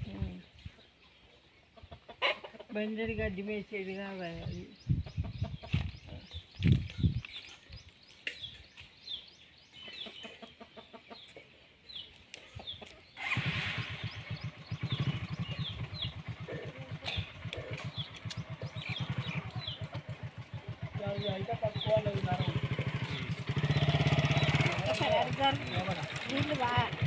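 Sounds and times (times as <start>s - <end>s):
birds chirping: 0.0s - 27.0s
small engine running: 13.2s - 27.0s.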